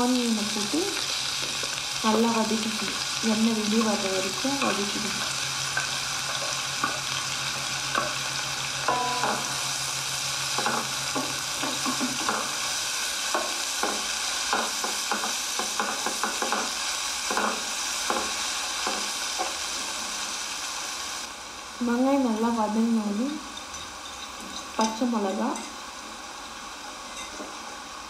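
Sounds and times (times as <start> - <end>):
onions sizzling in hot oil: 0.0 - 28.0
spatula scraping and tapping pan: 10.6 - 12.6, 13.3 - 19.6.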